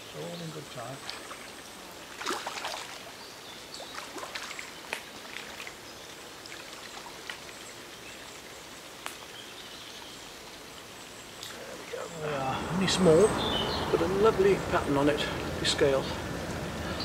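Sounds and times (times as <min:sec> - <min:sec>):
trickling water: 0:00.0 - 0:17.0
fish splashing at water surface: 0:01.0 - 0:03.2, 0:03.8 - 0:05.8.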